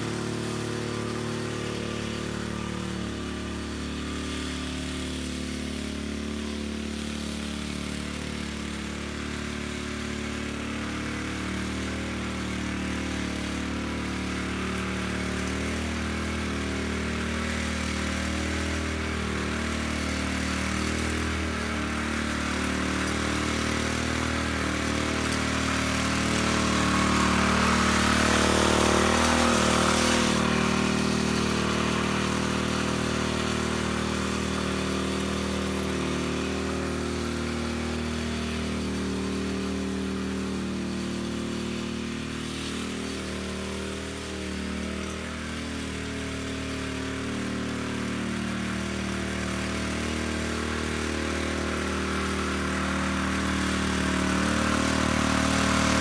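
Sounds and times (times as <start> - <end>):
rototiller engine running: 0.0 - 56.0
tines churning dry soil: 0.0 - 56.0.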